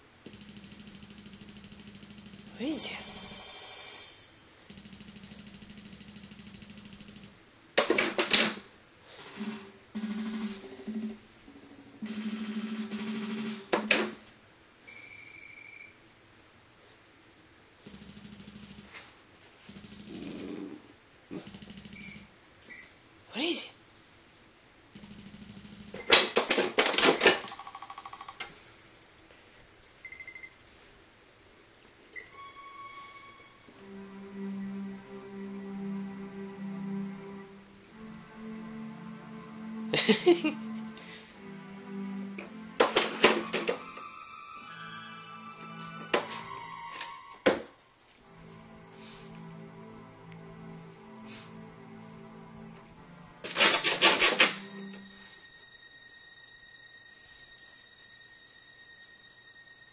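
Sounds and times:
pulsing electronic tones: 0.3 - 7.3
portable keyboard notes: 32.3 - 45.0.

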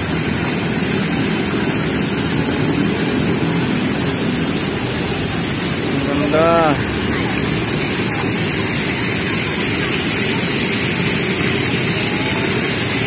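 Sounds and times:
fountain water splashing: 0.0 - 13.0.

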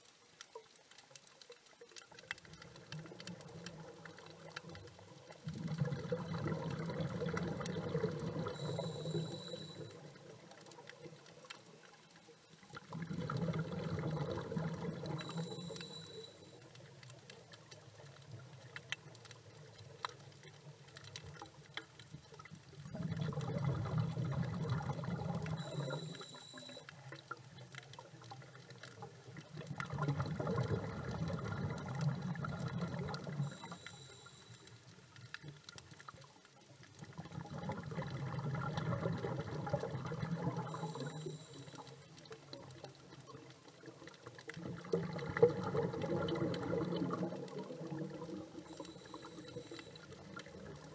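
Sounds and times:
regulator exhale bubbles underwater: 5.4 - 10.0, 12.8 - 16.4, 22.9 - 26.8, 29.5 - 34.4, 37.0 - 42.0, 44.6 - 50.9.

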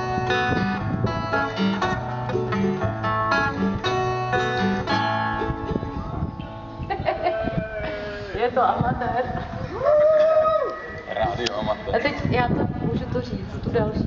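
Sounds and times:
plucked strings: 0.0 - 7.0.

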